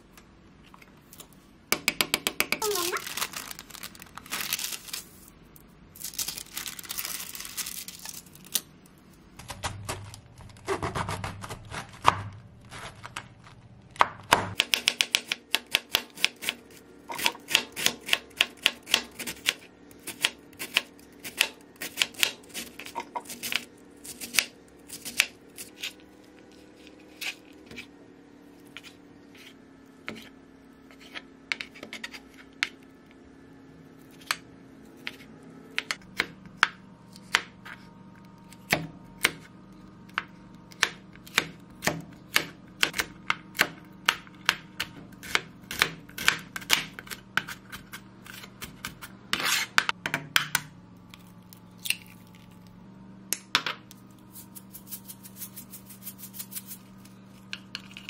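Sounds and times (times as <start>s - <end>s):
rustling and handling noises: 2.6s - 14.0s.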